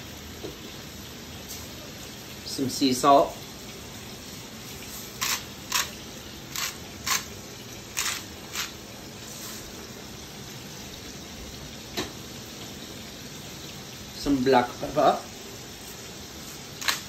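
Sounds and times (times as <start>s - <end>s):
chicken sizzling in a pan: 0.0s - 17.0s
salt shaken from container: 7.9s - 9.7s.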